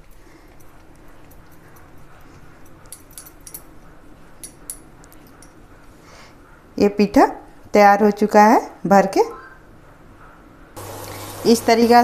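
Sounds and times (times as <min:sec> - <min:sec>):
metallic clinks of bangles: 0:00.0 - 0:05.6.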